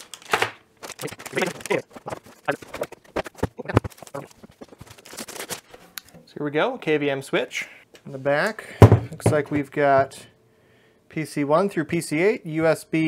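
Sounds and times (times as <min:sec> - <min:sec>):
plastic bags crinkling: 0:00.0 - 0:05.7.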